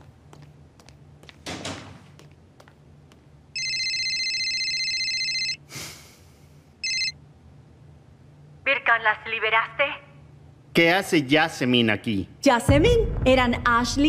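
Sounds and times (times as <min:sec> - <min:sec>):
mobile phone ringing: 0:03.6 - 0:05.6, 0:06.8 - 0:07.2.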